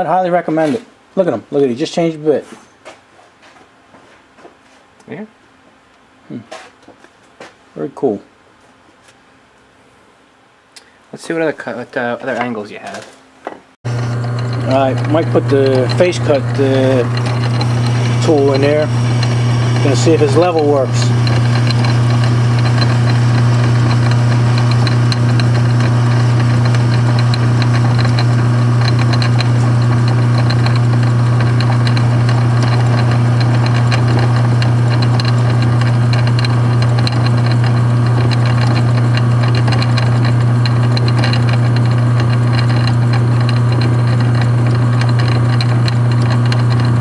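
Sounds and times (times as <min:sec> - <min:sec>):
lathe motor humming: 0:13.9 - 0:47.0
tool cutting steel bar: 0:13.9 - 0:47.0.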